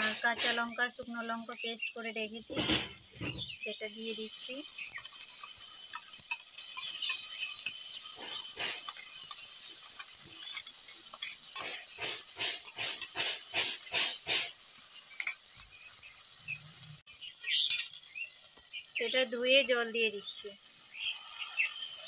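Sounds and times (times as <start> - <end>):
frying hiss: 0.0 - 22.0
spoon scraping spice paste: 4.6 - 15.5.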